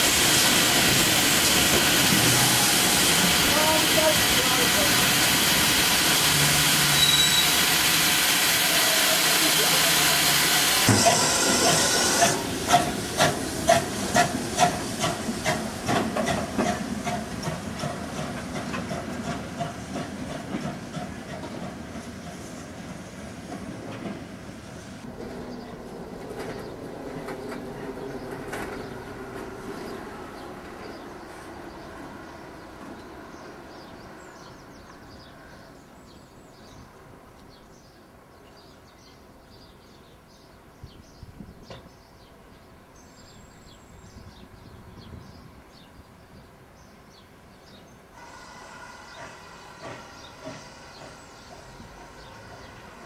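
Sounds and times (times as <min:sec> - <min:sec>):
steady hiss of steam: 0:00.0 - 0:21.4, 0:48.0 - 0:53.0
steam locomotive chuffing: 0:00.0 - 0:24.4, 0:48.2 - 0:53.0
low train rumble: 0:00.0 - 0:53.0
small birds chirping: 0:25.3 - 0:53.0.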